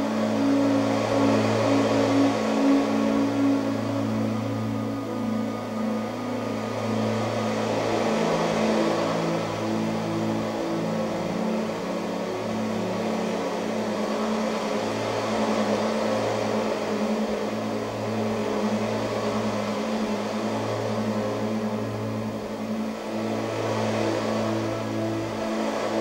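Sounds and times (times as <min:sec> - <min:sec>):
droning music: 0:00.0 - 0:26.0
steady hiss: 0:00.0 - 0:26.0.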